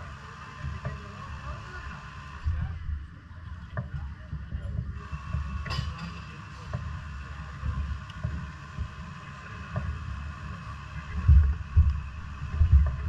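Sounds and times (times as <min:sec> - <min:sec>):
wind buffeting microphone: 0:09.8 - 0:13.0.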